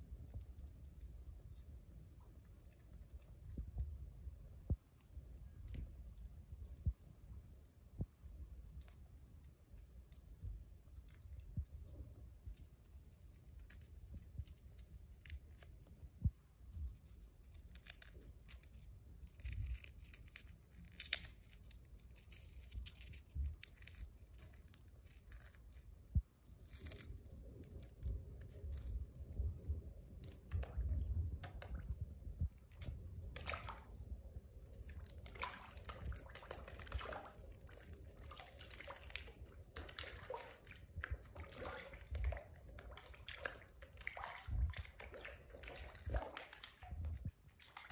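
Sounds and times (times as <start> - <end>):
small crackles: 0.0 - 47.9
water drips and splashes: 22.2 - 47.9.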